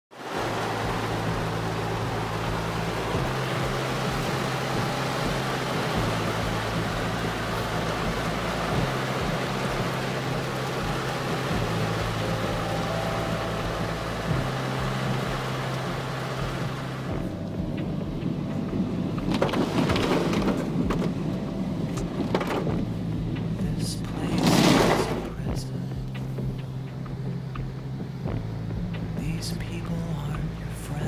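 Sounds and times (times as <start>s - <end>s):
car humming: 0.1s - 31.0s
heavy rain on car roof: 0.1s - 31.0s
irregular splashes and knocks: 19.2s - 21.3s.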